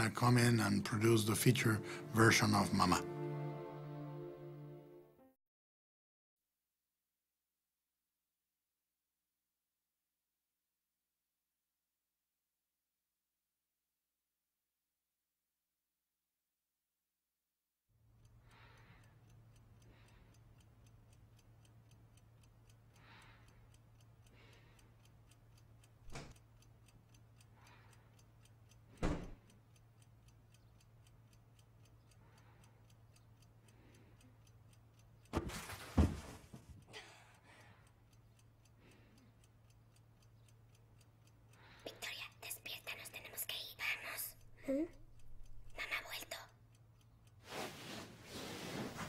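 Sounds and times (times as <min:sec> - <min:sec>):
clock ticking: 0:00.0 - 0:05.0, 0:18.0 - 0:47.6.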